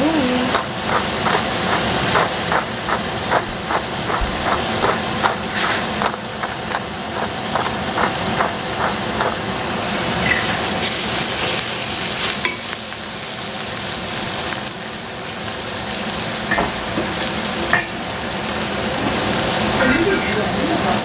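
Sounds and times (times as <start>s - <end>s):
vegetables sizzling in a pot: 0.0s - 21.0s.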